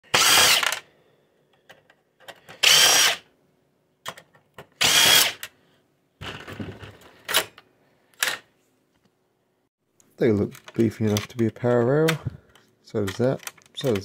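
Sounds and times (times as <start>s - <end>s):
electric screwdriver running: 0.1s - 0.8s, 2.6s - 3.2s, 4.8s - 5.4s.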